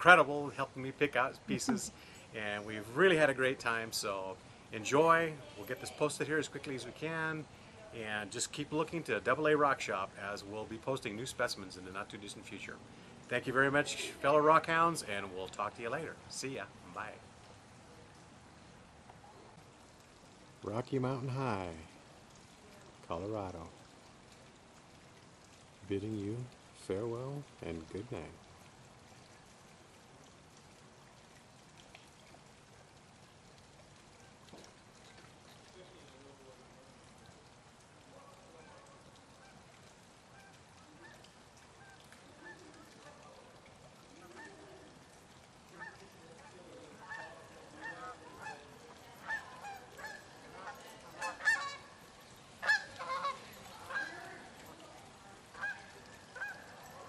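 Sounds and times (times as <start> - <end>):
faint steady hiss: 0.0 - 57.0
faint ticks: 28.4 - 36.3
flock of birds calling: 46.8 - 51.9, 52.6 - 54.6.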